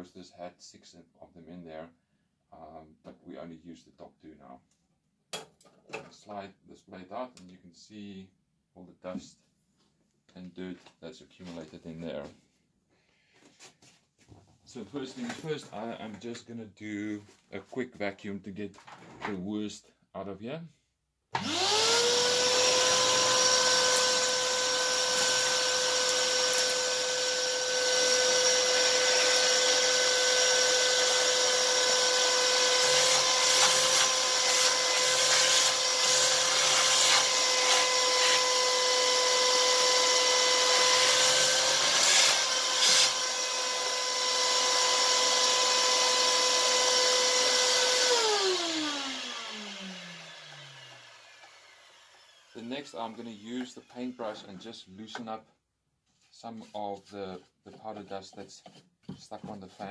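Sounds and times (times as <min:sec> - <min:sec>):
vacuum motor winding down: 0:21.4 - 0:34.4, 0:41.9 - 0:52.6
vacuum cleaner whining: 0:21.4 - 0:52.7.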